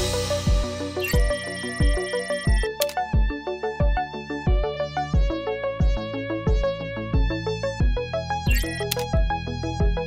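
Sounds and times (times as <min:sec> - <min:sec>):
electronic music: 0:00.0 - 0:02.8, 0:08.5 - 0:09.1.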